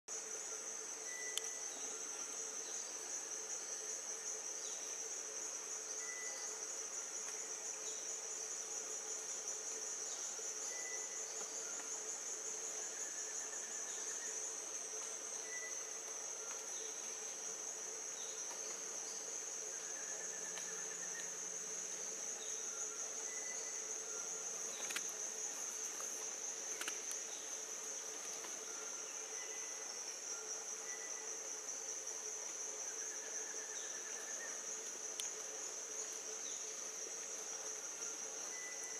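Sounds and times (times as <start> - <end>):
insects chorus: 0.1 - 38.9
faint clicks: 24.8 - 25.1, 26.7 - 27.2.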